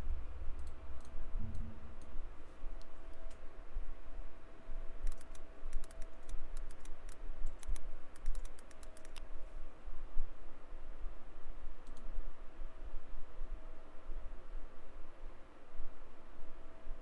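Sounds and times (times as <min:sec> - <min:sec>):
low steady rumble: 0:00.0 - 0:17.0
computer keyboard typing: 0:05.0 - 0:09.2.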